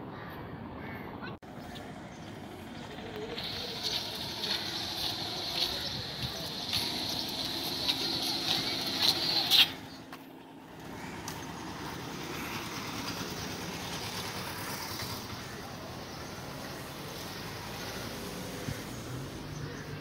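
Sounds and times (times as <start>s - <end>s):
road traffic: 0.0s - 20.0s.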